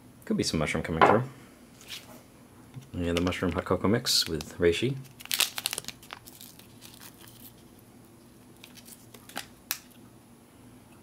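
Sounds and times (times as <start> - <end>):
paper sachet tearing: 5.0 - 7.8, 8.6 - 9.9.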